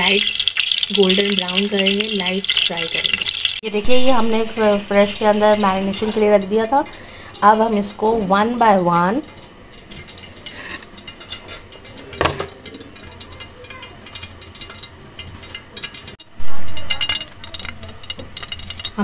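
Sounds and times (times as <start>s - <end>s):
loud burst of sizzling: 0.0s - 8.0s
hot oil crackling in a pan: 0.0s - 19.0s.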